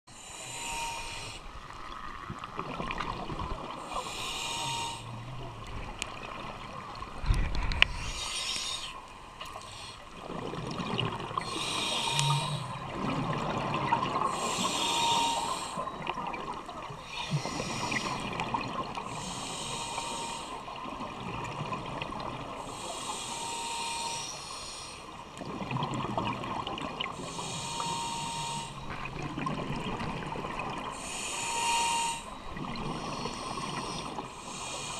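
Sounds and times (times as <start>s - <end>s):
scuba regulator breathing hiss: 0.1s - 1.5s, 3.8s - 5.2s, 7.9s - 10.1s, 11.4s - 12.8s, 14.3s - 15.8s, 17.0s - 18.4s, 19.1s - 20.7s, 22.6s - 25.2s, 27.2s - 28.9s, 30.9s - 34.9s
exhaled bubbles rushing: 10.2s - 11.5s, 12.7s - 14.4s.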